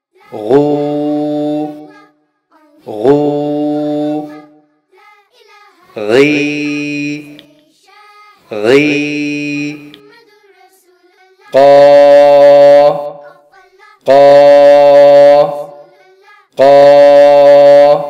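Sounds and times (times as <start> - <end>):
person pronouncing a syllable: 0.3 - 2.0, 2.8 - 4.6, 6.0 - 7.5, 8.5 - 10.0, 11.5 - 13.3, 14.0 - 15.8, 16.6 - 18.0.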